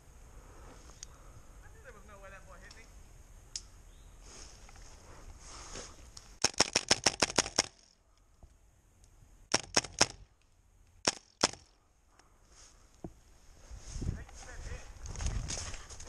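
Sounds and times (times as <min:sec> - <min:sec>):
airsoft rifle shots: 0:06.4 - 0:07.9, 0:09.5 - 0:10.2, 0:11.0 - 0:11.8.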